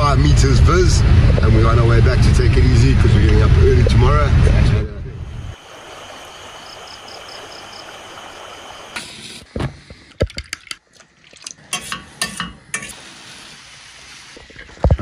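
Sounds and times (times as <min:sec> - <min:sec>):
steady hiss: 0:05.4 - 0:09.4, 0:12.9 - 0:15.0.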